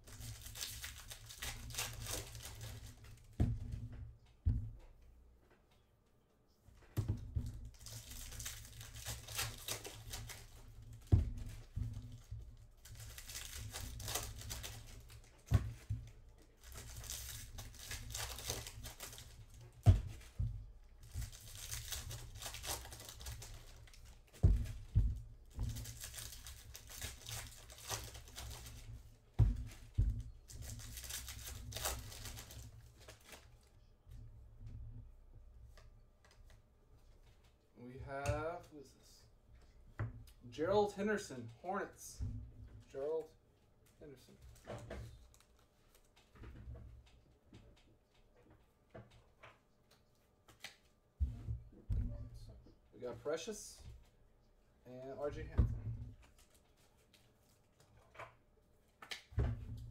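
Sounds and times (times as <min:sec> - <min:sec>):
foil wrappers tearing and crinkling: 0:00.0 - 0:03.2, 0:07.7 - 0:12.2, 0:12.8 - 0:15.4, 0:16.6 - 0:19.8, 0:21.0 - 0:24.4, 0:25.5 - 0:29.0, 0:30.5 - 0:33.5.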